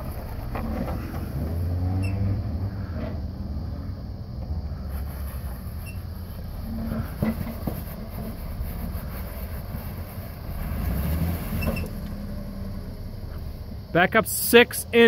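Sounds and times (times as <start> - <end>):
car engine rumbling at low revs: 0.0 - 15.0.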